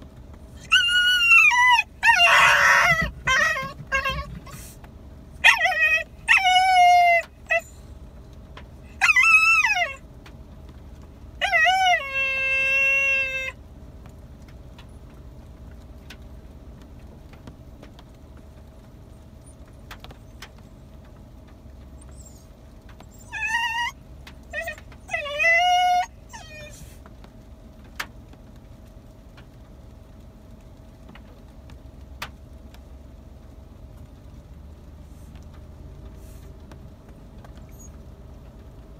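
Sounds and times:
dogs whining and yelping: 0.6 - 4.8, 5.4 - 8.1, 8.8 - 10.0, 11.4 - 13.6, 19.4 - 20.7, 21.8 - 27.0, 37.5 - 38.0.

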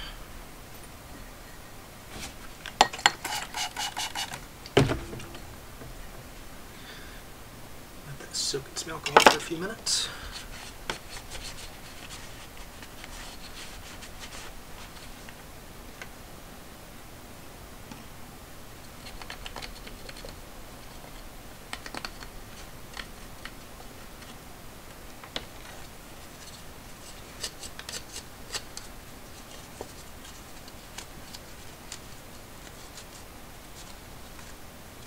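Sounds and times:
cotton swab scrubbing plastic: 10.3 - 15.3.

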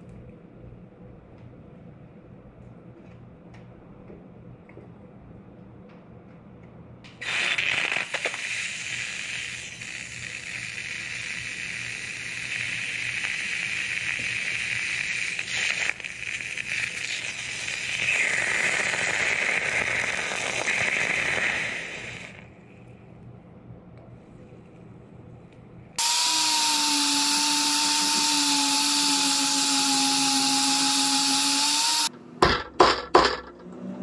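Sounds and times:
ice sizzling on hot metal: 7.2 - 22.4.

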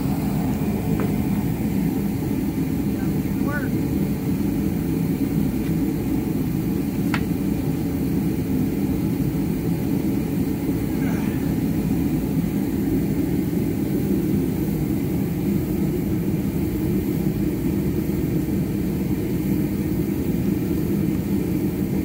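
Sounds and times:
engine droning: 0.0 - 22.0.

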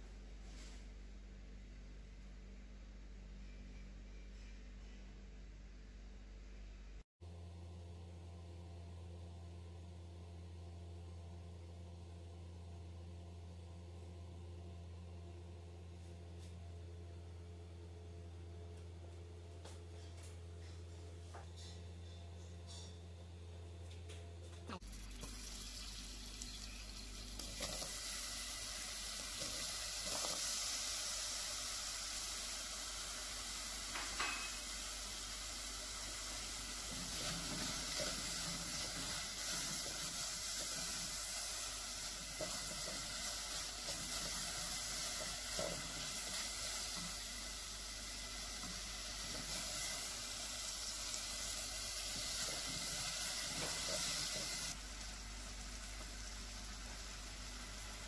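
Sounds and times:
apple sizzling in a pot: 24.7 - 58.0.

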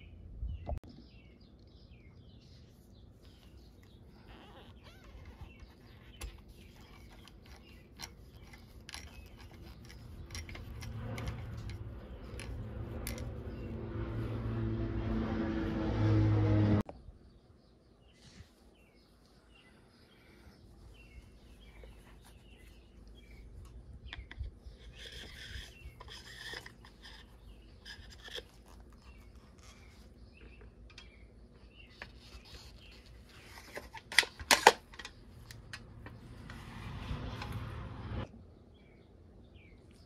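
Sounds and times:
rubber tyres rubbing and scraping: 3.2 - 16.9, 20.2 - 38.3.

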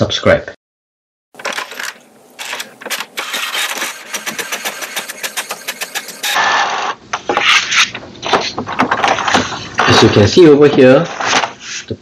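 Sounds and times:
paper rustling: 1.4 - 11.9
inkjet printer printing: 2.4 - 6.5.

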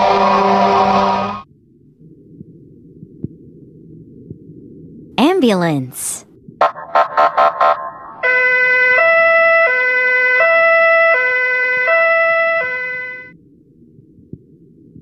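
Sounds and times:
two-tone ambulance siren: 0.0 - 1.4, 6.6 - 13.4.

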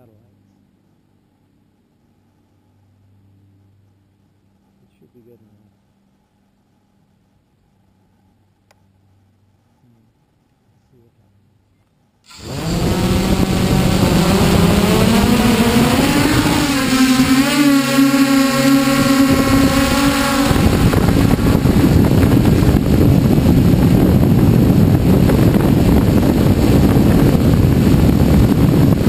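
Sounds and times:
drone propellers whining: 12.3 - 29.0
rough rushing noise: 12.3 - 29.0.

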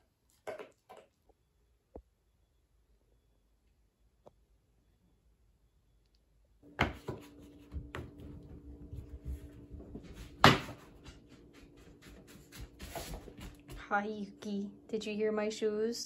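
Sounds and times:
footsteps on a wooden floor: 6.8 - 13.9.

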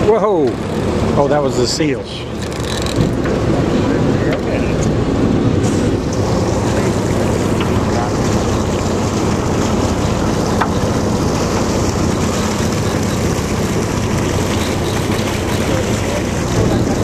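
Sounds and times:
boat engine humming: 0.0 - 17.0
water washing along hull: 0.0 - 17.0.

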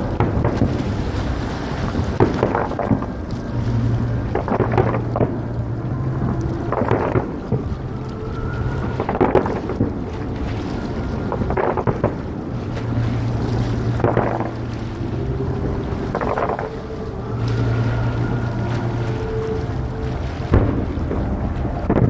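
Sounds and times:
firework shells booming: 2.2 - 3.1
firework crackle: 6.7 - 7.6.

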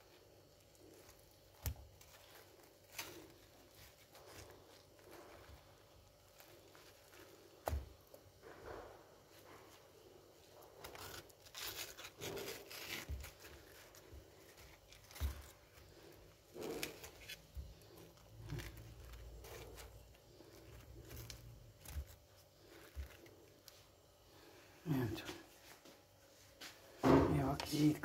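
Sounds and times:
knife cutting watermelon: 10.6 - 23.8.

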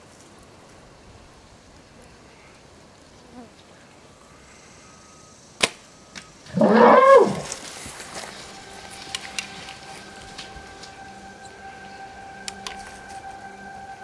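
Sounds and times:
bow string snap: 5.6 - 6.3
elephant squealing: 6.5 - 8.2.

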